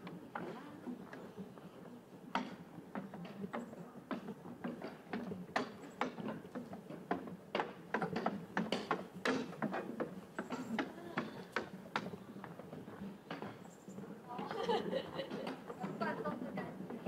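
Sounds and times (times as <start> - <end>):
footsteps: 0.0 - 17.0.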